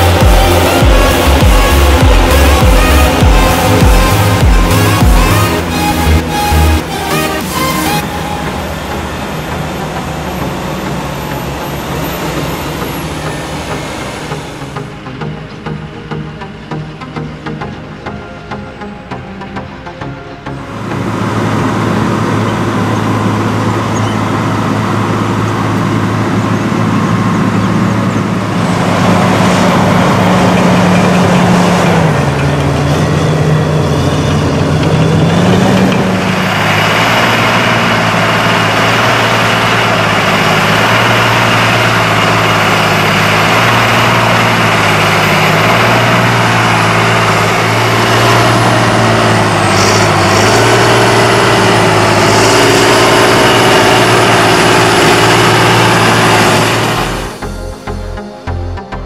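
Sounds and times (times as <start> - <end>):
tractor engine pulling scraper: 0.0 - 17.9, 20.0 - 58.0
bulldozer diesel engine: 0.0 - 59.0.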